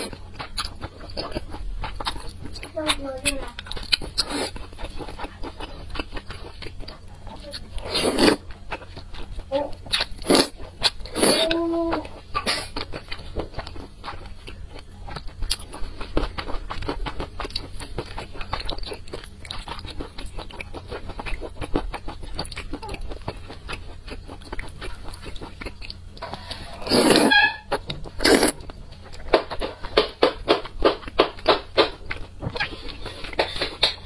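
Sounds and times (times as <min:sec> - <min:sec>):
wet chewing: 0:00.0 - 0:34.0
noodle slurping: 0:26.2 - 0:27.6.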